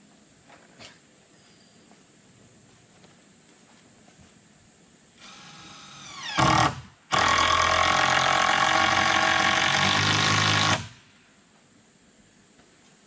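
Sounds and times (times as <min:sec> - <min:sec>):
power drill driving screw: 0:05.2 - 0:10.9.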